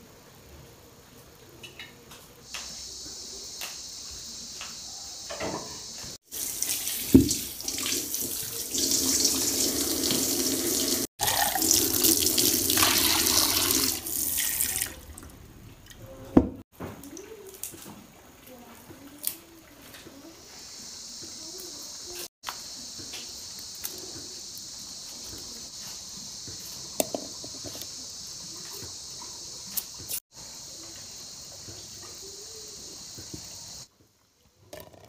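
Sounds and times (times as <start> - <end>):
tap water splashing into sink: 6.6 - 9.4.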